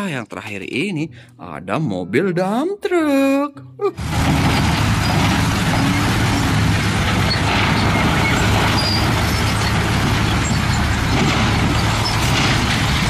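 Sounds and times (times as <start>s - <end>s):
diesel truck engine running: 4.0s - 13.0s
rock and dirt tumbling out: 4.0s - 13.0s.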